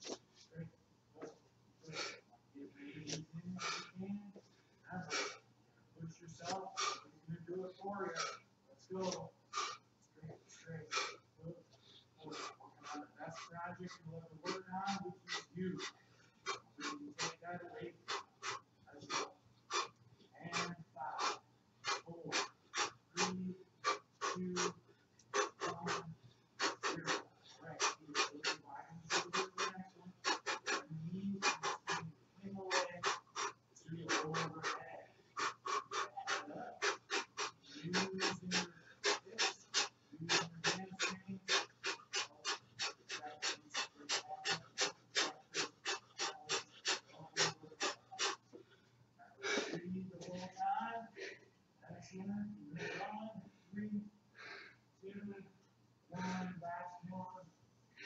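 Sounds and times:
faint low hum: 0:00.0 - 0:58.0
person breathing hard: 0:01.8 - 0:02.3, 0:02.9 - 0:04.0, 0:05.0 - 0:05.4, 0:06.4 - 0:07.1, 0:08.0 - 0:08.4, 0:09.0 - 0:50.4, 0:54.4 - 0:54.9, 0:56.2 - 0:56.5
person grunting: 0:35.4 - 0:48.4.

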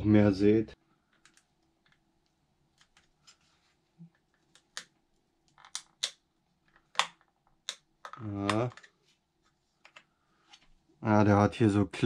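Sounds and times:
plastic cover clicks and snaps: 0:04.5 - 0:06.2, 0:06.8 - 0:09.0.

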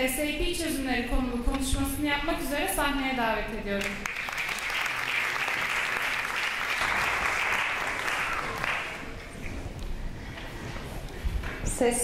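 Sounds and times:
audience applauding: 0:04.0 - 0:09.4.

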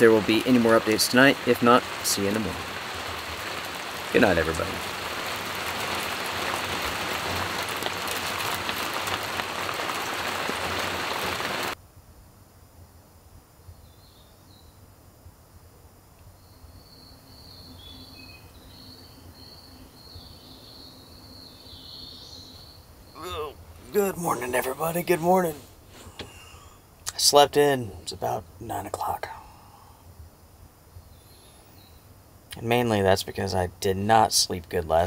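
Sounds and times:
heavy rain pouring: 0:00.0 - 0:11.8, 0:23.2 - 0:29.8
faint bird chirps: 0:13.6 - 0:14.9, 0:16.2 - 0:24.7, 0:30.9 - 0:32.2.

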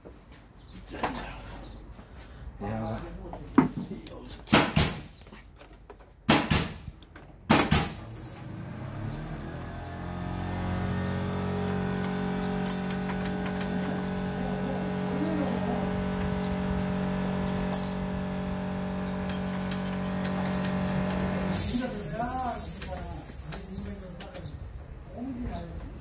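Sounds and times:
steady mechanical hum: 0:00.4 - 0:26.0
wrench clinking on metal: 0:12.6 - 0:13.0, 0:17.5 - 0:18.0.

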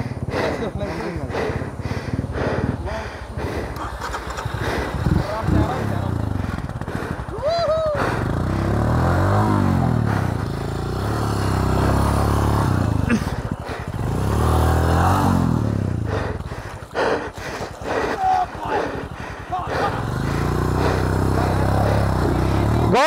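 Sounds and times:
motorcycle engine revving: 0:00.0 - 0:23.0
person shouting: 0:07.3 - 0:08.0, 0:18.2 - 0:18.8.

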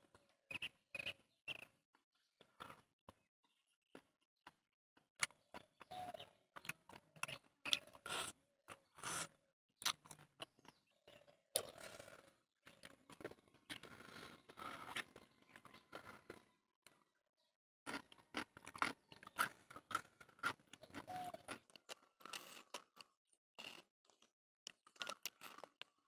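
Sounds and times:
chewing: 0:06.6 - 0:10.8, 0:11.5 - 0:17.0, 0:17.9 - 0:26.0.

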